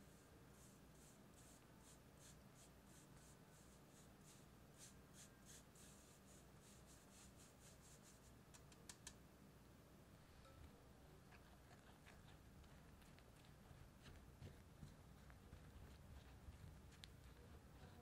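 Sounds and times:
flour sifting through sieve: 0.0 - 8.4.

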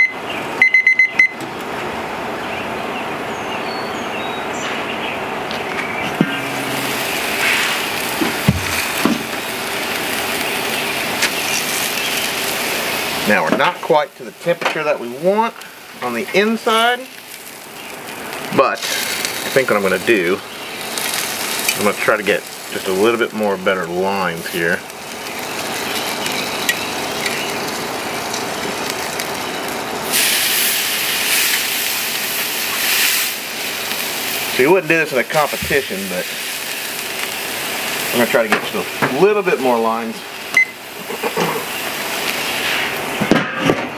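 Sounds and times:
steak sizzling on a grill: 5.2 - 43.3
heavy thump: 6.1 - 9.4.

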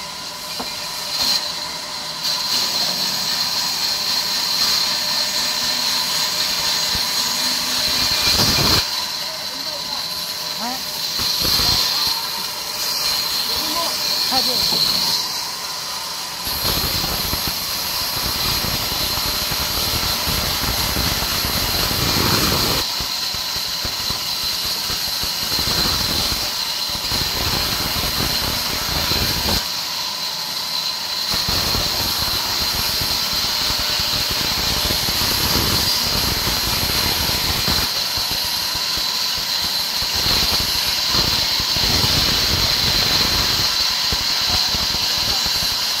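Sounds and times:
band saw cutting wood: 0.0 - 46.0.

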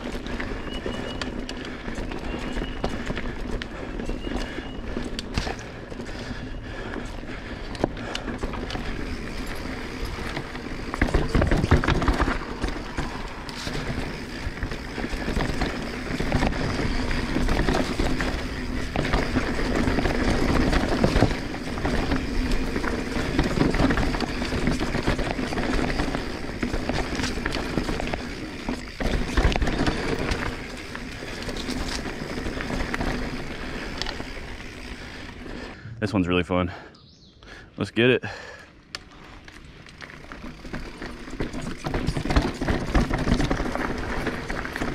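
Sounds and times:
bike tyre rumble on dirt: 0.0 - 36.0, 38.2 - 44.9
bike knocks and rattles: 7.7 - 35.1, 39.9 - 44.9.

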